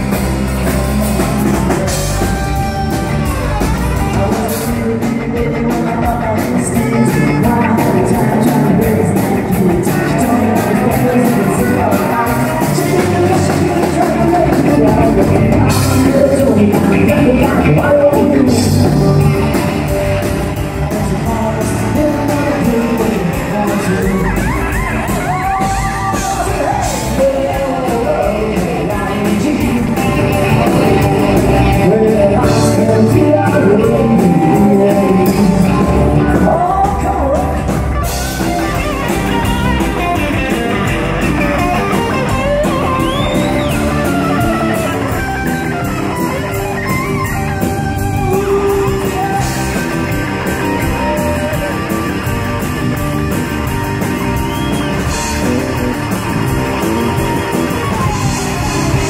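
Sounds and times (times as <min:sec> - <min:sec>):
bass guitar: 0:00.0 - 0:59.0
drums: 0:00.0 - 0:59.0
electric guitar: 0:00.0 - 0:59.0
man singing into a microphone: 0:04.0 - 0:38.0, 0:47.3 - 0:52.0.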